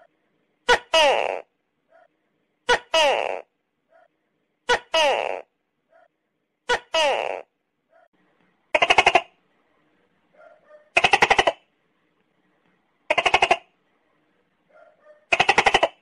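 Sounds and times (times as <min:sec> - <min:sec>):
gecko calling: 0:13.1 - 0:13.7.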